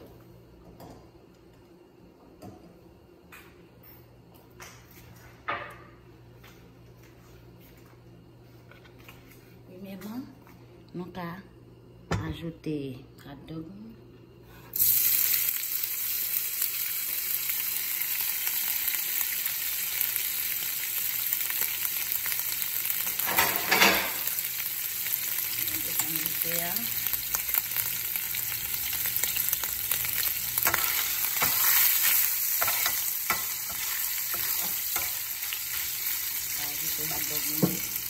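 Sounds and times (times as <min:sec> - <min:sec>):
food sizzling in oil: 0:14.7 - 0:38.0
utensil stirring in pan: 0:29.5 - 0:36.7.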